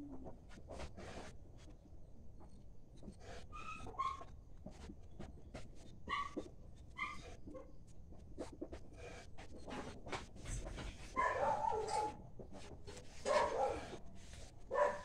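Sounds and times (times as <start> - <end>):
clicks and shuffling: 7.6 - 15.0.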